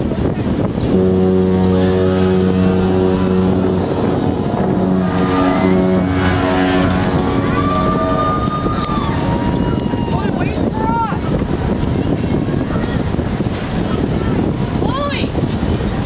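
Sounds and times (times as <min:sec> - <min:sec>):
deep ship's horn blasts: 0:00.0 - 0:12.1.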